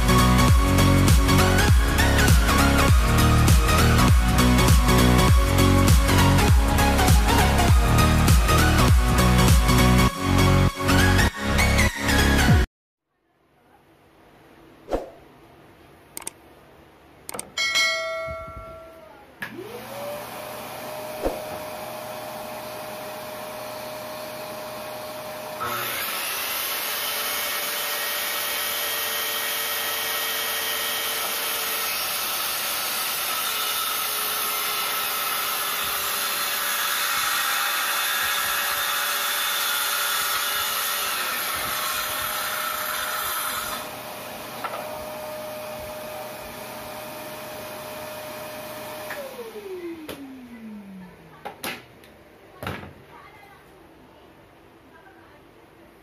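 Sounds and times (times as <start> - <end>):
shop vacuum running: 19.4 - 51.6
circular saw cutting plywood: 19.7 - 50.8.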